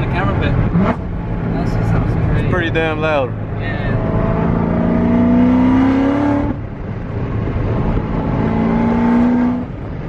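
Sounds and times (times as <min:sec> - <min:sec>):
car engine accelerating: 0:00.0 - 0:10.0.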